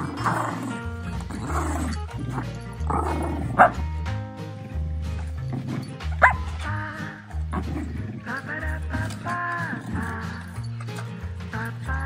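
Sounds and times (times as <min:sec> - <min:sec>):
dog barking and yipping: 0:00.0 - 0:03.9, 0:05.3 - 0:06.7
background music with bass: 0:00.0 - 0:12.0.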